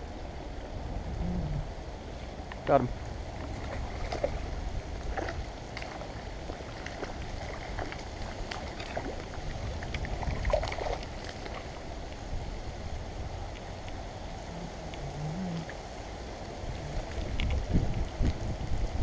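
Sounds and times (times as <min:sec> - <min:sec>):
steady low rumble: 0:00.0 - 0:19.0
fish splashing at water surface: 0:03.4 - 0:11.8.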